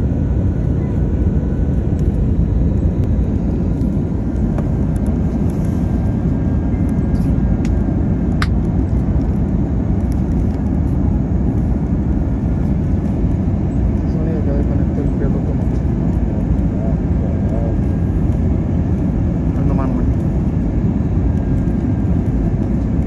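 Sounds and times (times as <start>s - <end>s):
airplane cabin engine rumble: 0.0s - 23.0s.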